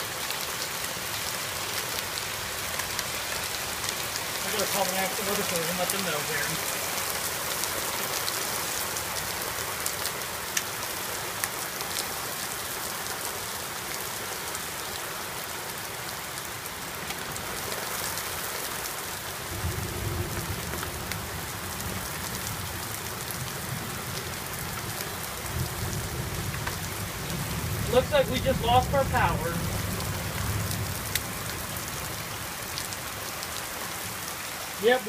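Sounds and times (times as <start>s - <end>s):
heavy rain pouring: 0.0s - 35.0s
hailstones ticking: 1.6s - 12.1s, 19.4s - 34.1s
low thunder rumble: 19.4s - 32.5s.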